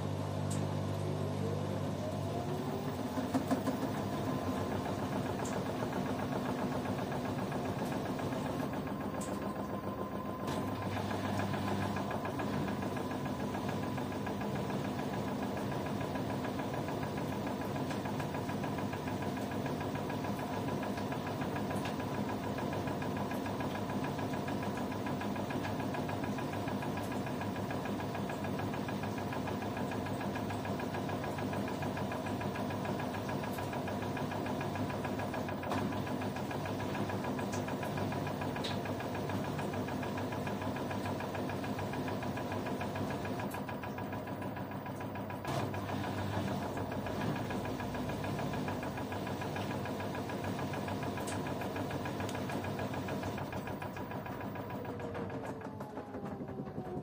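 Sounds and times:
washing machines running: 0.0s - 57.0s.

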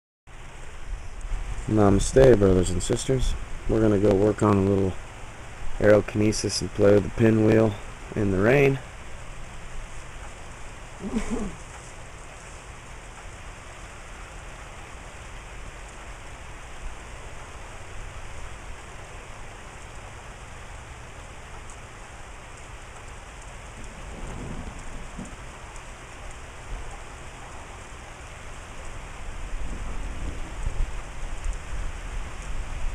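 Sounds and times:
rain falling: 0.3s - 32.9s
low rumble: 23.6s - 27.1s.

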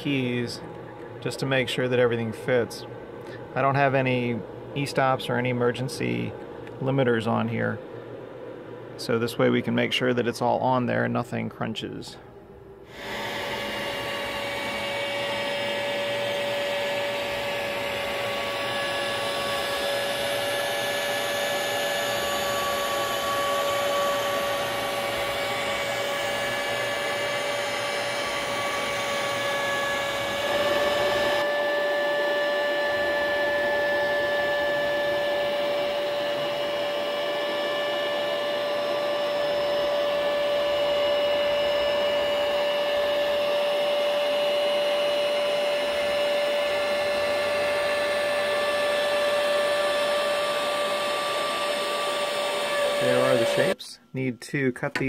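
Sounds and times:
router whining while cutting plywood: 12.9s - 53.8s.

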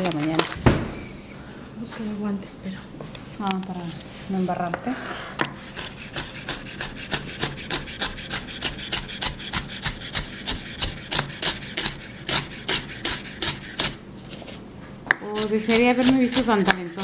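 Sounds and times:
knife chopping on wooden board: 5.8s - 14.0s, 15.1s - 17.0s.

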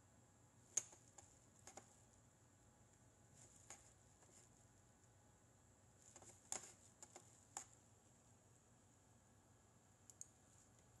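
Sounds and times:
faint high-pitched whine: 0.0s - 11.0s
computer mouse clicks: 0.7s - 2.0s, 6.1s - 7.8s, 10.0s - 10.9s.

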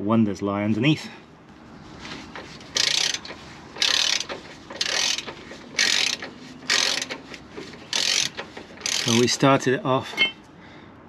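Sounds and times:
socket ratchet clicking: 2.3s - 9.4s.

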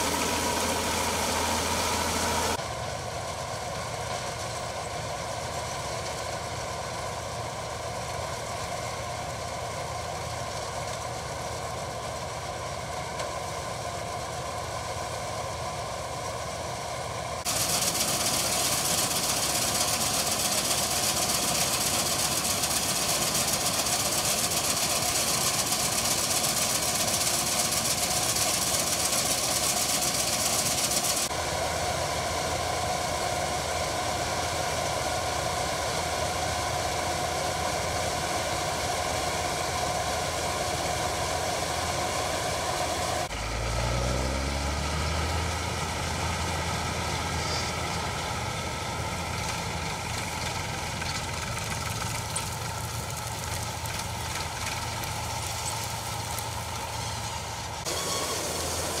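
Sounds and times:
grain streaming from auger: 0.0s - 2.6s, 17.4s - 43.3s, 44.8s - 59.0s
combine harvester running: 0.0s - 59.0s.

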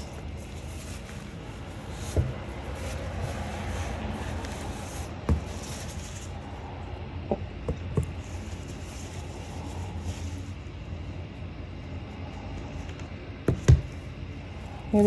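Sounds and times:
paper towel rustling: 0.0s - 6.5s, 8.2s - 10.6s
steady background noise: 0.0s - 15.0s.

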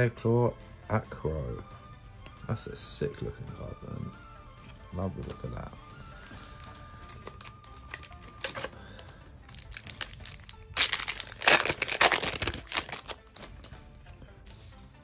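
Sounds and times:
foil wrapper crinkling: 6.2s - 8.8s, 9.4s - 13.8s
pack rustling: 6.2s - 8.8s, 9.5s - 13.8s.

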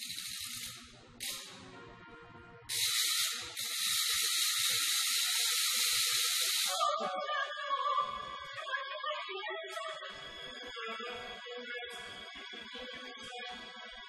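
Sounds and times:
loud pitchless hiss: 2.7s - 6.8s.

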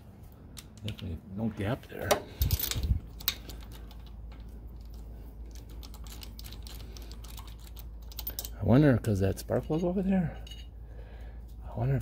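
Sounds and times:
steady low hum: 0.0s - 12.0s
hand tools clicking and knocking: 1.9s - 10.7s.

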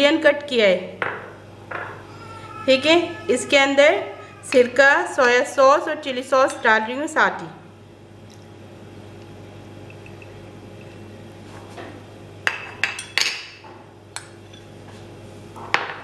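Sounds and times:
ceramic dish clinking on plate: 12.5s - 13.6s.

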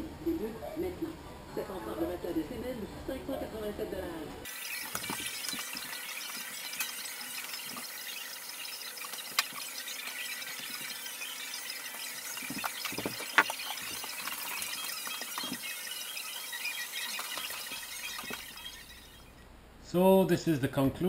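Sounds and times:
hose and wand knocking: 12.3s - 15.7s.

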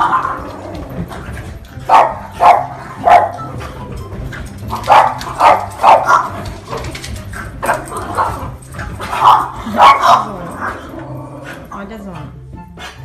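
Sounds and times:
puppies yapping barks: 0.0s - 0.8s, 1.5s - 3.7s, 4.4s - 10.8s.

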